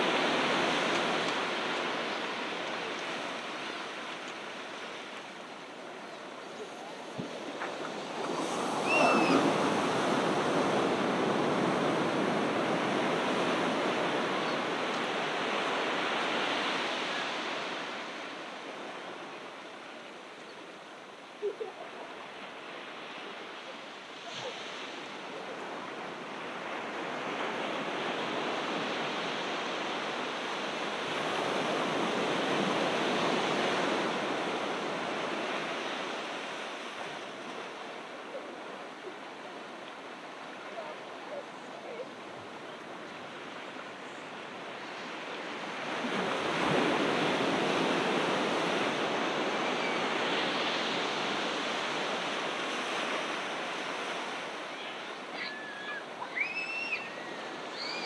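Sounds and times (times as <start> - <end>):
ocean surf breaking: 0.0 - 19.6, 42.2 - 58.0.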